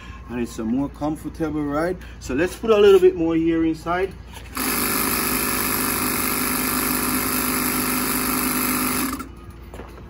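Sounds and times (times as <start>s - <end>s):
air compressor running: 4.1s - 9.4s.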